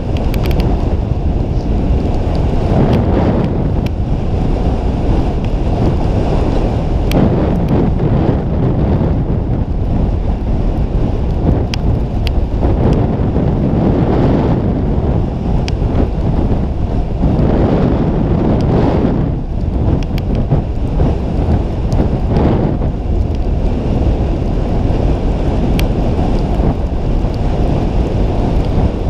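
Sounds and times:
wind rushing over microphone: 0.0 - 29.0
faint clicks: 0.1 - 0.7.

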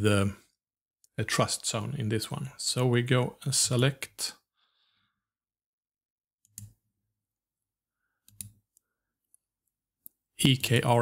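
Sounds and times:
computer mouse clicks: 6.4 - 6.8, 8.2 - 9.4.

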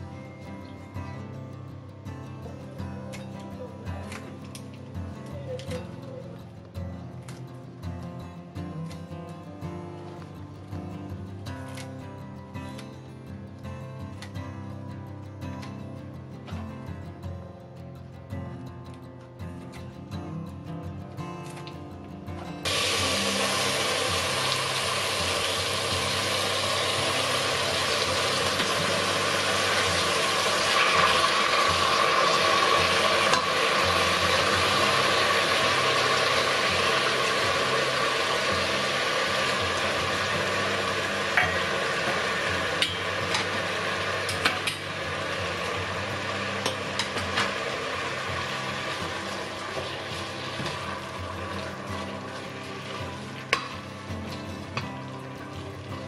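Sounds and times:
seaweed sizzling in a pot: 22.6 - 56.0.

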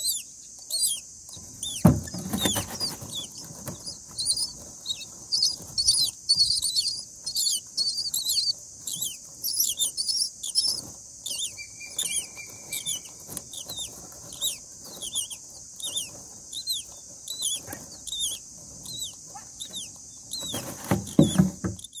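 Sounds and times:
steady high hiss: 0.0 - 21.9
nestlings begging squeaks: 0.0 - 22.0
bird wings fluttering thump: 1.8 - 3.8, 20.4 - 21.8.

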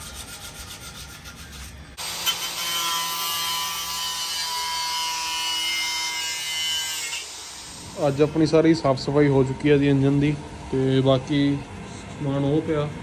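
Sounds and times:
workshop machine whining: 0.2 - 13.0.

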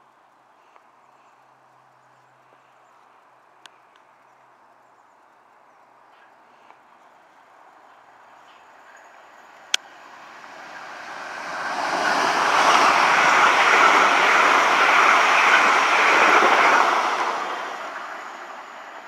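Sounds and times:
train passing: 6.1 - 19.0.

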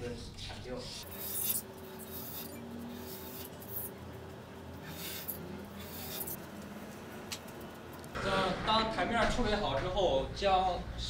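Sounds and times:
metal scraper scraping putty: 1.0 - 3.9.

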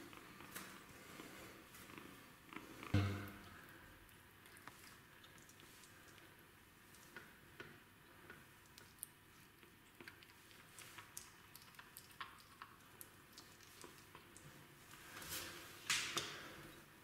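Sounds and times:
kitten chewing and licking: 3.5 - 15.0.

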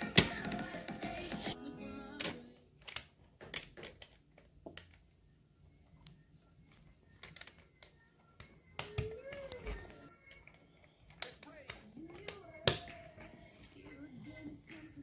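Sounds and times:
plastic toy bricks clicking together: 7.2 - 9.6, 10.2 - 13.2.

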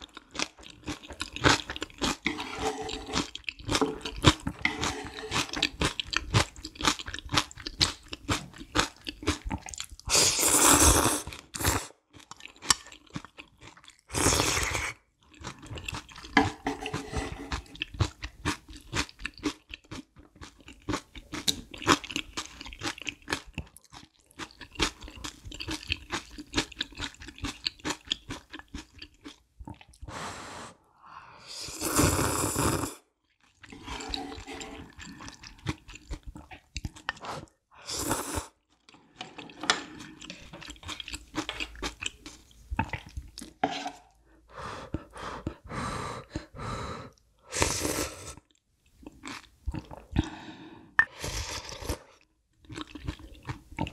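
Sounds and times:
chewing with wet mouth clicks: 5.4 - 10.1, 17.7 - 30.0, 34.9 - 37.2, 40.3 - 43.6, 52.6 - 53.9.

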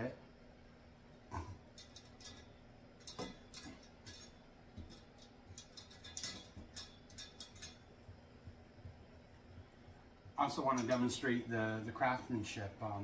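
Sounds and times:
metal spit forks clinking: 1.7 - 7.9, 10.5 - 11.3.

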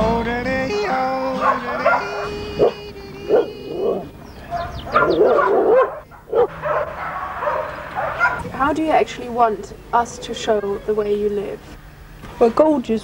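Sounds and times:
dog barking: 1.4 - 8.5.

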